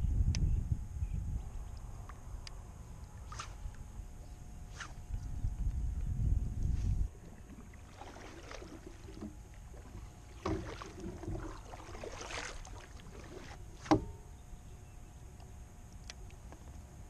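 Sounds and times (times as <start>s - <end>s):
paddle splashing through water: 7.1s - 14.1s.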